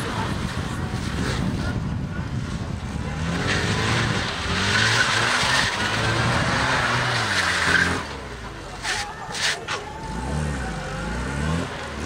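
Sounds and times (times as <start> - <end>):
car engine revving: 2.6 - 12.0
tyres squealing: 3.4 - 11.4.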